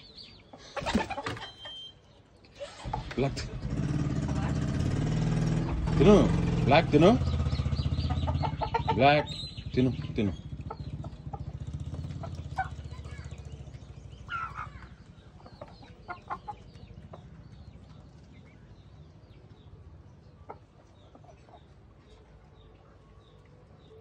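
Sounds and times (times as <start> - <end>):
faint high chirping: 0.0 - 2.6
chickens clucking: 0.0 - 24.0.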